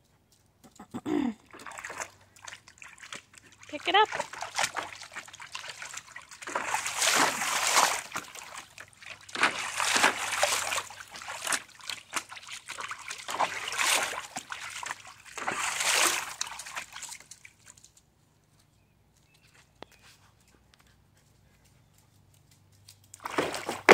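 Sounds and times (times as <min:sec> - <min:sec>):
dog splashing in water: 0:01.5 - 0:17.9, 0:23.2 - 0:23.9.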